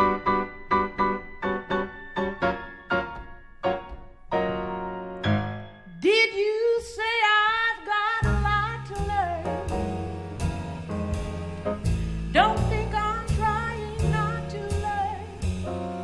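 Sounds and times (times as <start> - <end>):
jazz piano chords: 0.0 - 16.0
upright bass: 8.2 - 16.0.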